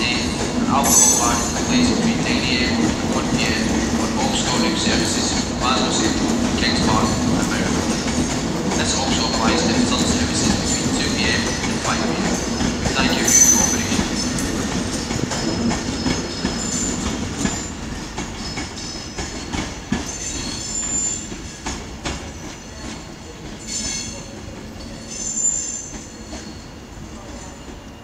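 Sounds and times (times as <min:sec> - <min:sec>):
train wheels squealing: 0:00.0 - 0:02.7, 0:08.8 - 0:28.0.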